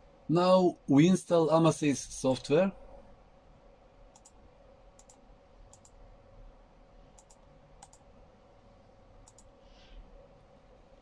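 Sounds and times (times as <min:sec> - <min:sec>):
faint steady hum: 0:00.0 - 0:11.0
computer mouse clicking: 0:04.1 - 0:04.4, 0:05.0 - 0:06.0, 0:07.2 - 0:08.0, 0:09.2 - 0:09.6.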